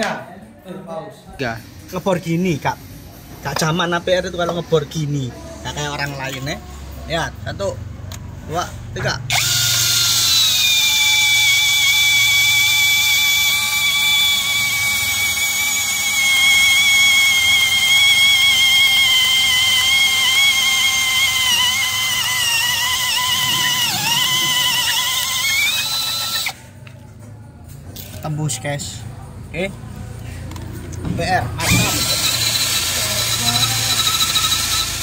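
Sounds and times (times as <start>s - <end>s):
cordless drill whining through steel: 9.3s - 26.6s, 31.6s - 35.0s.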